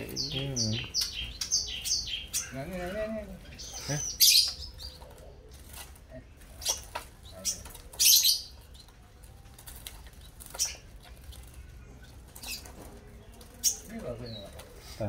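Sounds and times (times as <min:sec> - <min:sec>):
birds fluttering wings in cage: 0:04.4 - 0:15.0.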